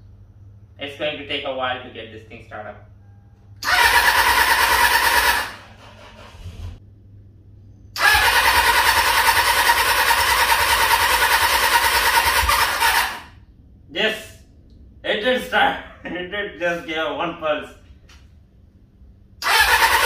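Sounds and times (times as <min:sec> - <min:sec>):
electric starter cranking engine: 0:03.6 - 0:06.8, 0:08.0 - 0:13.4, 0:19.4 - 0:20.0.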